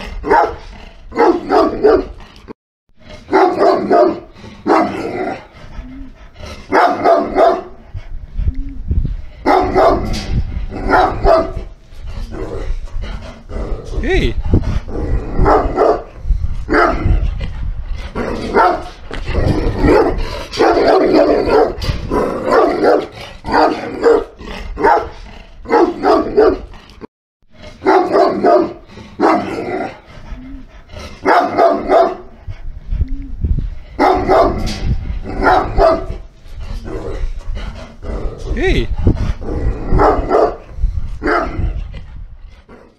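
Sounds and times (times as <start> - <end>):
dog barking: 0.3 - 0.6, 1.2 - 2.1, 3.3 - 5.1, 6.7 - 7.8, 9.4 - 10.1, 10.8 - 11.6, 15.4 - 16.1, 16.7 - 17.0, 18.5 - 18.9, 19.8 - 21.8, 22.4 - 26.7, 27.8 - 29.6, 31.2 - 32.3, 34.0 - 34.7, 35.4 - 36.2, 39.9 - 40.6, 41.2 - 41.5.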